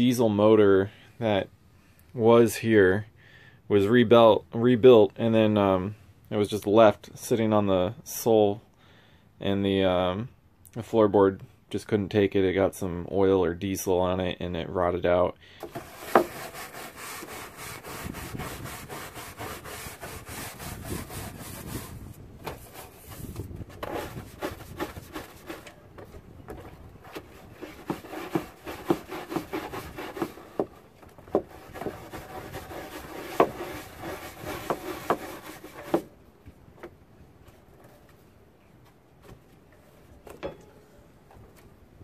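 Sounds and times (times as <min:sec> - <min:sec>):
deck brush scrubbing floor: 0:15.6 - 0:36.2.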